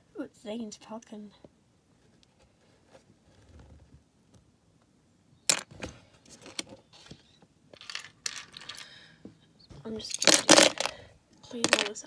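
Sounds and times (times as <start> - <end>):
plastic pieces clattering in bin: 7.8 - 8.9, 10.0 - 11.0, 11.6 - 11.9.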